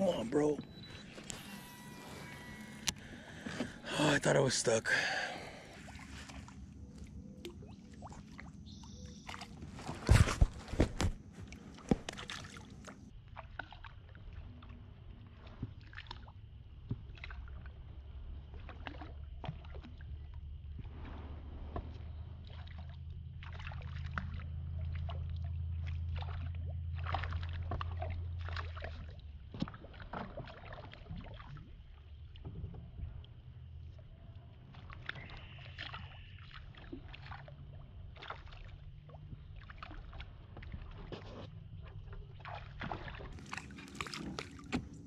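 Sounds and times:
water sounds: 0:00.0 - 0:45.0
low steady hum: 0:16.5 - 0:29.6.

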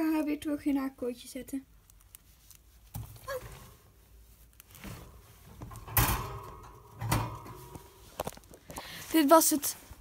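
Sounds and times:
knocks and rustles at a wire cage: 0:02.9 - 0:04.0, 0:04.8 - 0:08.8.

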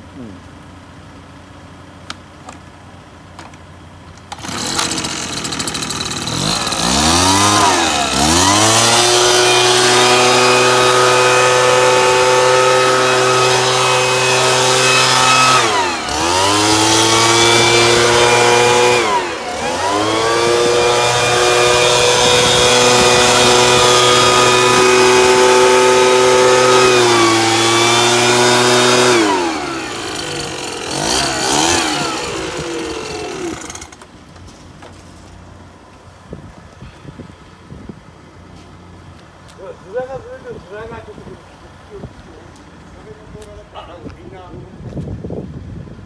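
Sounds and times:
two-stroke leaf blower revving: 0:04.1 - 0:34.2.

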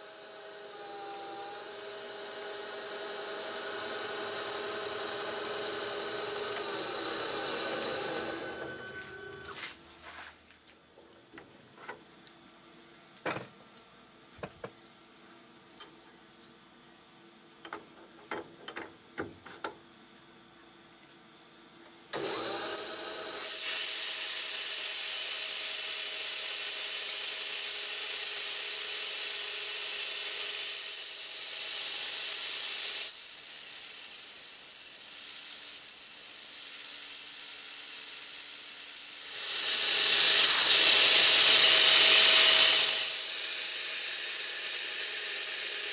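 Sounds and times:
lathe running with hum: 0:00.0 - 0:09.8, 0:21.6 - 0:35.0, 0:39.1 - 0:45.9.

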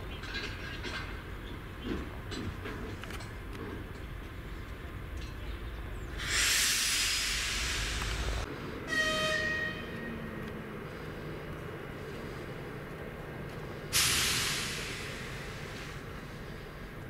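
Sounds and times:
diesel locomotive idling: 0:01.2 - 0:17.0
compressed air hissing: 0:06.2 - 0:08.5, 0:13.9 - 0:16.1
train horn: 0:08.8 - 0:10.3.

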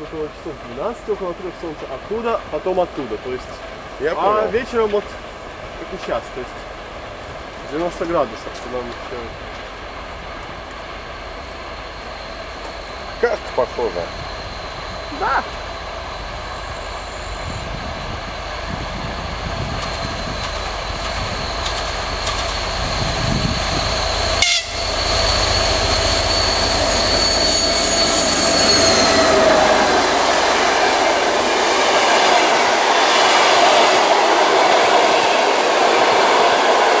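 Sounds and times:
diesel locomotive rumble and whine: 0:00.0 - 0:37.0
train wheels clattering on rails: 0:18.3 - 0:35.4.

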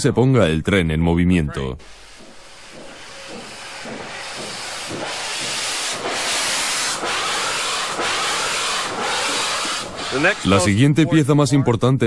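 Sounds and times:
steam locomotive hissing steam: 0:01.8 - 0:11.1.

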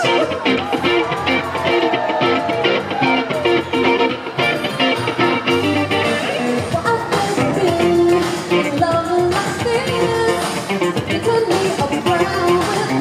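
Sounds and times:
electric guitar: 0:00.0 - 0:13.0
live synthpop band: 0:00.0 - 0:13.0
woman singing: 0:06.4 - 0:13.0.

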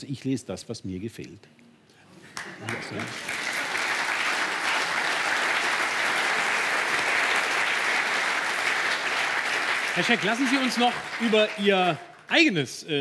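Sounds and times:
audience applauding: 0:02.3 - 0:12.6.

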